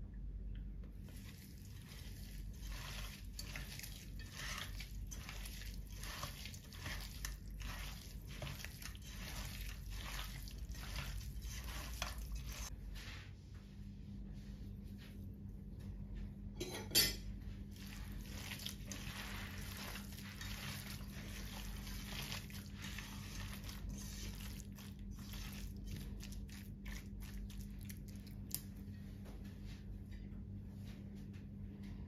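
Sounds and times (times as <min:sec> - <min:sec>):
hand squelching raw chicken: 0:01.1 - 0:12.7, 0:17.7 - 0:28.7.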